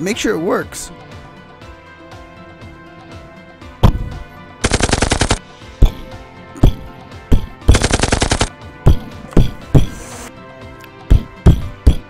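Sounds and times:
faint background music: 0:00.0 - 0:12.0
machine-gun burst: 0:04.6 - 0:05.4, 0:07.7 - 0:08.5.

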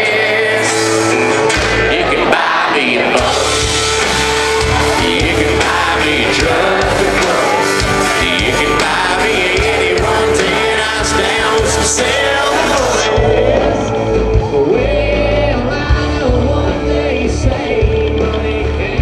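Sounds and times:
live country band playing: 0:00.0 - 0:19.0.

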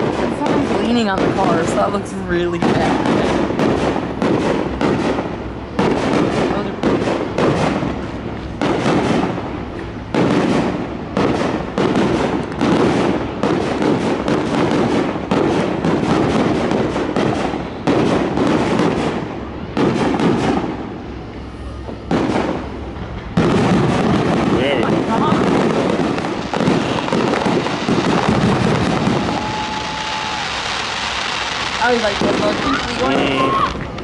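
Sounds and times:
firework shell bursts: 0:21.6 - 0:34.0.

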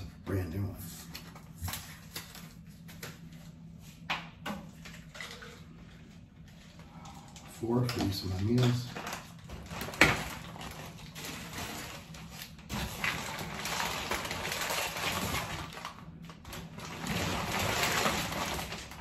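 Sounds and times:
plastic bag crinkling: 0:06.4 - 0:19.0.

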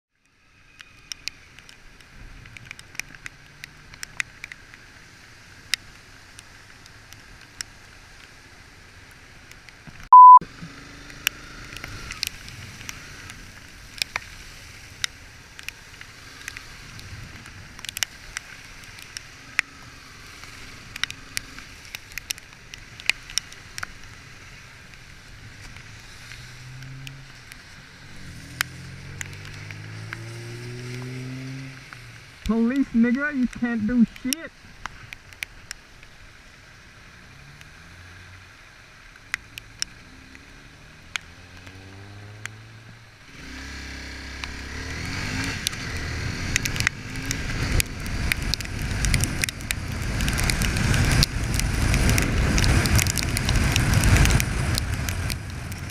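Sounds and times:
wet road spray and wind: 0:00.4 - 0:55.9
raindrops tapping on camera: 0:00.7 - 0:10.1, 0:11.0 - 0:55.9
high steady beep: 0:10.1 - 0:10.4.

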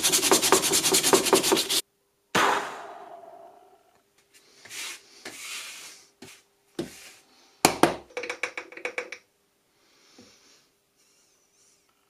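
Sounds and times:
brushing sweeps on workbench: 0:00.0 - 0:01.8, 0:04.3 - 0:07.3.

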